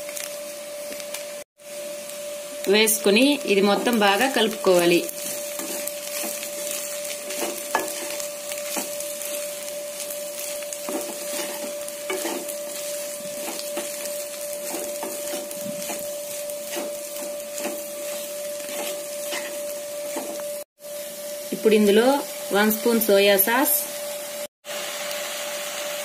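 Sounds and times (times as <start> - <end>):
frying sizzle: 0.0 - 26.0
spatula scraping and knocking pan: 4.6 - 20.6.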